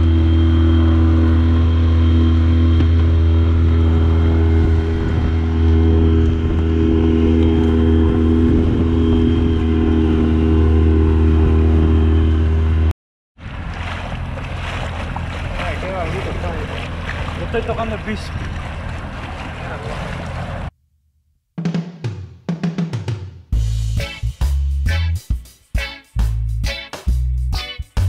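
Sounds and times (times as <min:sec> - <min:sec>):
outboard motor droning: 0:00.0 - 0:20.7
water rushing in wake: 0:00.0 - 0:20.7
wind: 0:00.0 - 0:20.7
water splashing against hull: 0:13.4 - 0:20.7.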